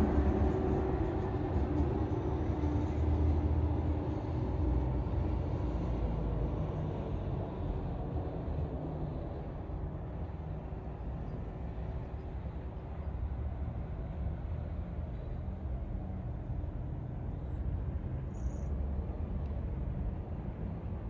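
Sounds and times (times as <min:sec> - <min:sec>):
high-speed train rumbling: 0:00.0 - 0:21.0.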